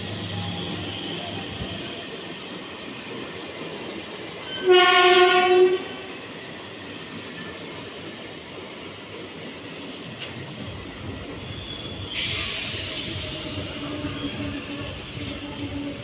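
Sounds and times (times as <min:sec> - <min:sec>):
train rolling past: 0:00.0 - 0:16.0
locomotive horn blast: 0:04.6 - 0:06.0.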